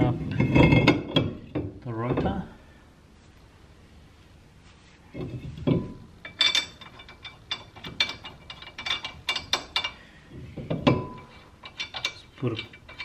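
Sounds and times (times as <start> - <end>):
lug nuts clicking and tapping: 5.6 - 10.0.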